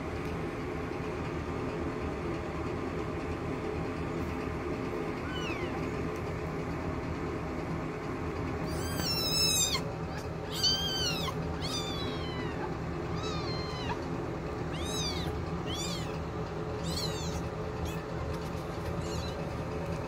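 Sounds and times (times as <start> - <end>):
kittens mewing: 5.2 - 6.0, 8.6 - 20.0.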